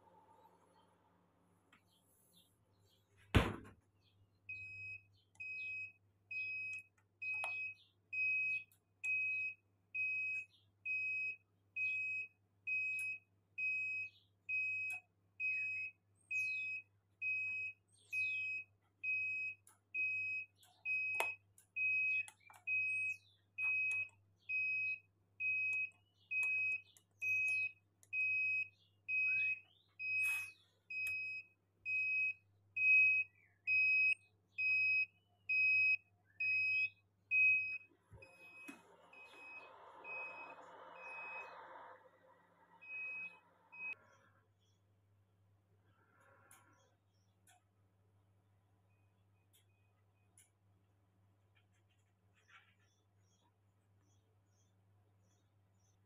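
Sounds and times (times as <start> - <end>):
alarm buzzer beeping: 4.5 - 41.6, 42.8 - 44.0.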